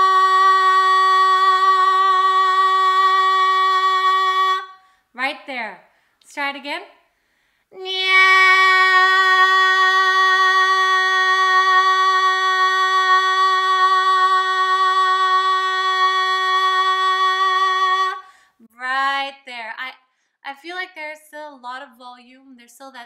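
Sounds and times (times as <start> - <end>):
woman singing a long note: 0.0 - 4.8, 7.8 - 18.3.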